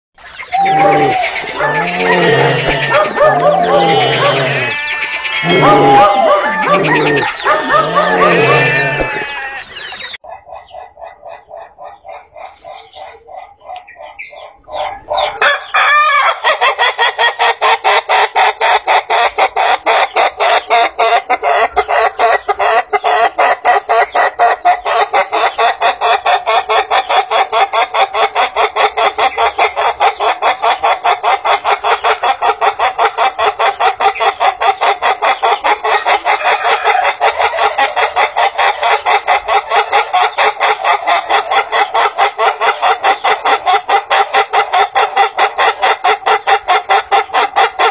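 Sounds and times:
rooster crowing staccato: 0:00.6 - 0:09.6.

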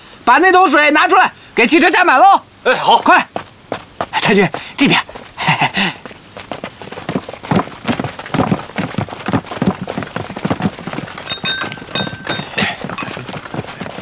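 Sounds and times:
footsteps on dirt: 0:03.0 - 0:14.0
dishes clinking: 0:11.2 - 0:13.8.

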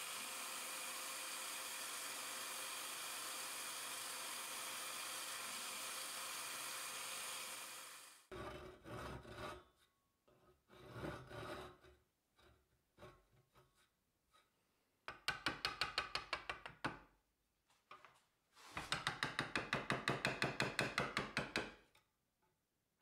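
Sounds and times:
disc sander sanding wood: 0:00.0 - 0:08.3
handsaw cutting wood: 0:00.0 - 0:08.3.

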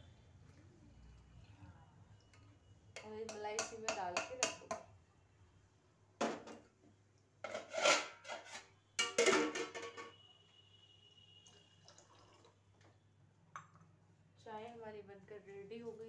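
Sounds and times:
metal spoon striking steel pots: 0:03.0 - 0:04.9, 0:09.0 - 0:10.2.

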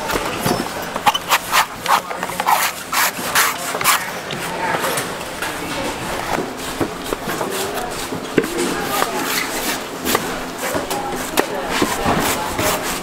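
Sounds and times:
knife rasping coconut husk: 0:01.0 - 0:04.2, 0:07.4 - 0:13.0.

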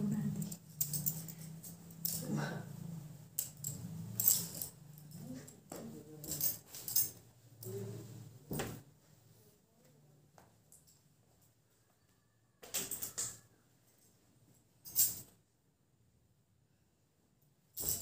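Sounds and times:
bangles clinking: 0:00.2 - 0:07.2, 0:14.8 - 0:15.3, 0:17.8 - 0:18.0.

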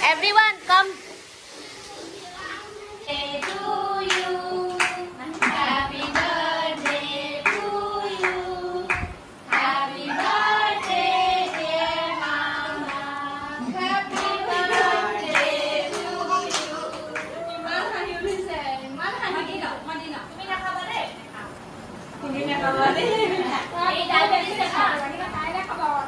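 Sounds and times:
people singing together: 0:03.0 - 0:17.4.

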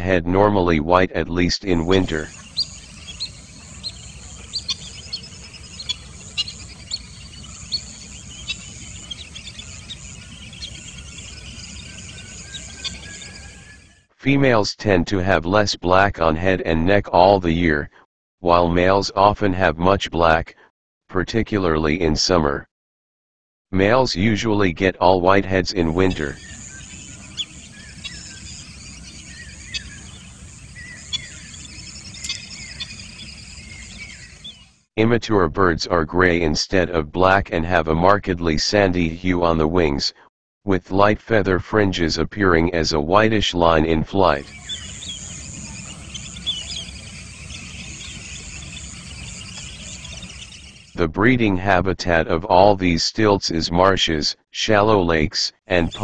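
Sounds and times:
birds chirping: 0:01.9 - 0:14.0, 0:25.9 - 0:34.8, 0:44.2 - 0:51.0, 0:55.8 - 0:56.0
insect drone: 0:02.3 - 0:14.0, 0:26.4 - 0:34.8, 0:44.4 - 0:51.0.

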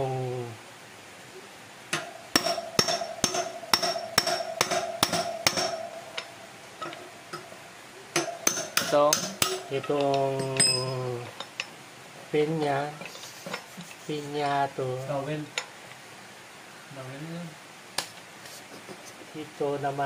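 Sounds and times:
hammer striking metal: 0:01.9 - 0:07.4, 0:08.1 - 0:09.8, 0:10.4 - 0:11.0.

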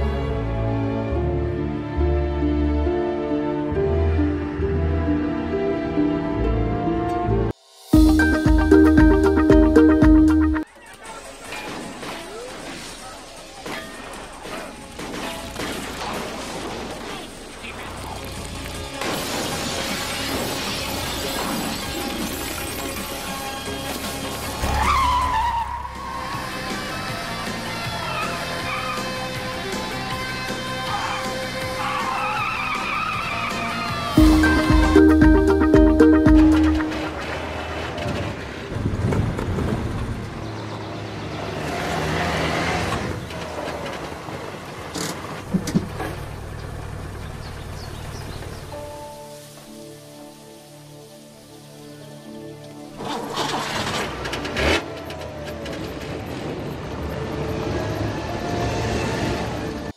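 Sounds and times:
film music: 0:00.0 - 0:10.7, 0:22.6 - 0:37.9
tyre squeal: 0:24.6 - 0:26.7.

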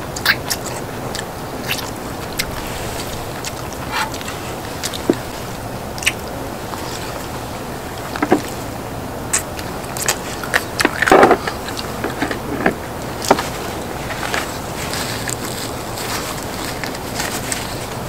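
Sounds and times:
mouth and utensil noise: 0:00.0 - 0:18.0
steady background hiss: 0:00.0 - 0:18.0
person chewing and biting: 0:00.2 - 0:05.4.

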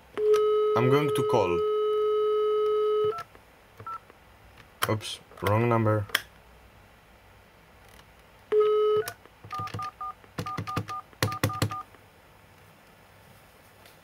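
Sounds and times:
telephone dial tone: 0:00.2 - 0:04.0, 0:08.5 - 0:11.8.

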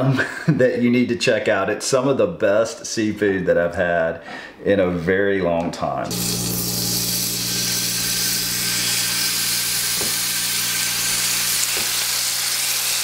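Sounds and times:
low hum: 0:06.0 - 0:13.0
fish sizzling in hot oil: 0:06.1 - 0:13.0.

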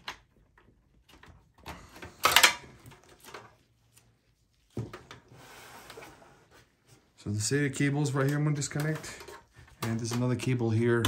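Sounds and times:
cables and connectors clicking: 0:07.8 - 0:11.0.

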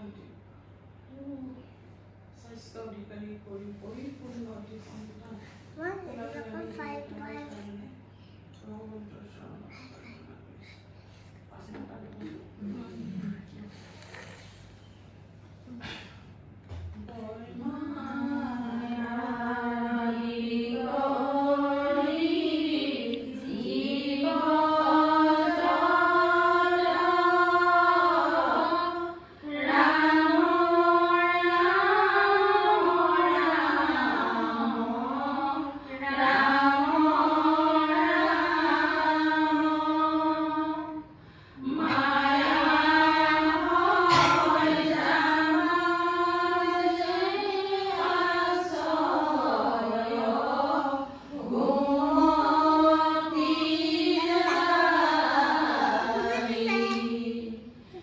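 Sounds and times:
women chanting a devotional song: 0:17.1 - 0:58.0.

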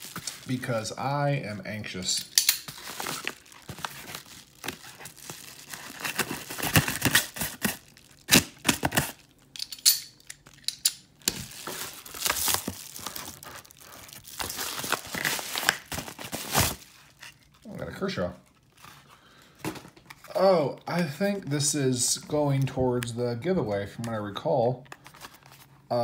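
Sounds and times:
package being torn open: 0:02.6 - 0:09.4, 0:11.2 - 0:17.7.

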